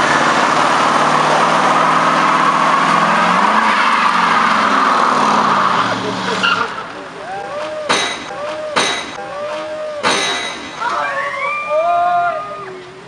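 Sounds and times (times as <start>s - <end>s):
car engine at high revs: 0.0s - 7.8s
tyres screeching: 0.0s - 13.0s.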